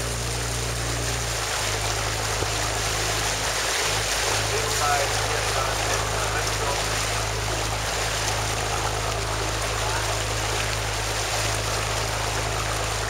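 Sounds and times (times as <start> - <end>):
boat engine running: 0.0 - 13.0
water rushing past hull: 0.0 - 13.0.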